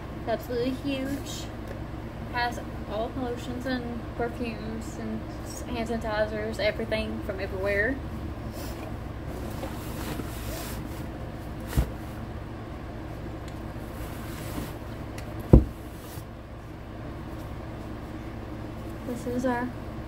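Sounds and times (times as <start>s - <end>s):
steady low hum: 0.0s - 20.0s
handling noise of items: 8.5s - 12.4s, 13.0s - 19.1s
thump: 15.5s - 15.8s.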